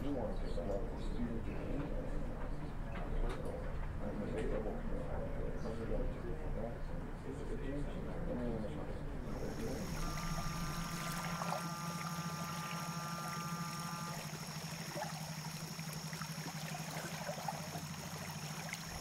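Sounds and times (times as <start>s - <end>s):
boat engines droning: 7.6s - 19.0s
steady high whine: 9.2s - 19.0s
soft steady tones: 9.3s - 19.0s
water lapping and trickling: 9.3s - 19.0s.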